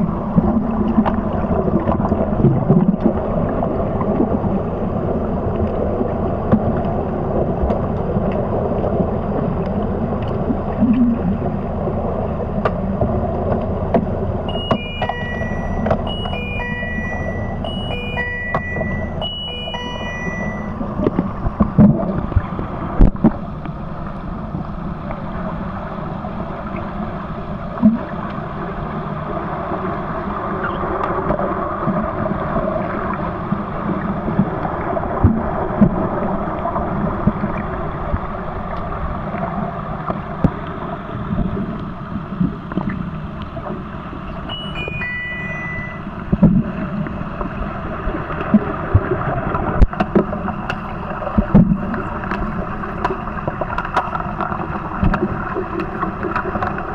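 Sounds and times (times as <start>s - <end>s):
muffled underwater rush and bubbles: 0.0s - 56.9s
descending electronic beeps: 14.5s - 20.8s, 44.5s - 46.1s
sharp underwater clicks and knocks: 49.0s - 56.9s.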